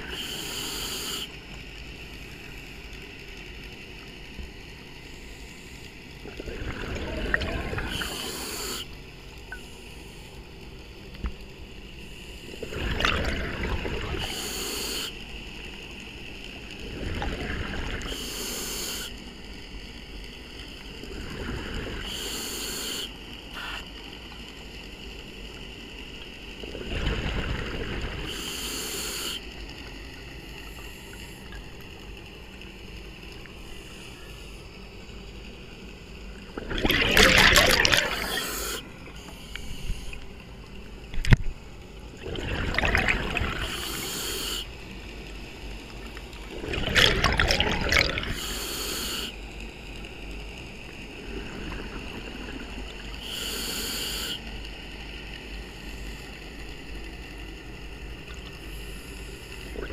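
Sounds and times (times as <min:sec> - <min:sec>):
scuba regulator breathing: 0:00.1 - 0:01.3, 0:07.8 - 0:08.9, 0:18.1 - 0:19.2, 0:22.0 - 0:23.8, 0:28.2 - 0:29.4, 0:37.4 - 0:40.3, 0:43.5 - 0:44.7, 0:48.2 - 0:49.4, 0:53.2 - 0:54.5
exhaled air bubbling: 0:06.2 - 0:08.9, 0:12.4 - 0:15.2, 0:16.8 - 0:19.1, 0:20.9 - 0:23.9, 0:26.6 - 0:31.9, 0:36.2 - 0:49.4, 0:50.7 - 0:54.5, 0:58.1 - 0:59.9.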